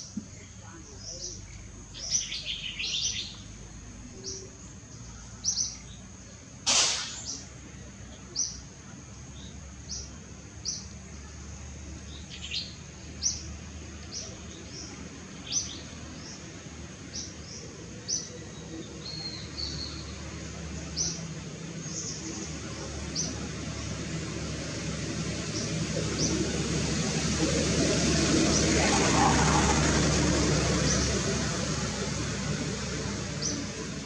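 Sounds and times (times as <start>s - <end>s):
bird chirping: 0.9s - 6.0s
harsh noisy burst: 6.7s - 7.5s.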